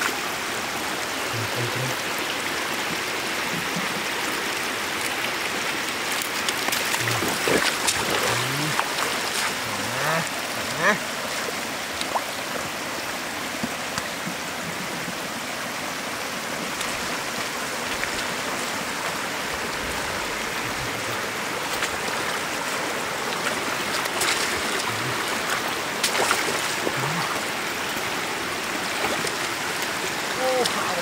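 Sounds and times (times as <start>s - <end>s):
floodwater flowing: 0.0s - 31.0s.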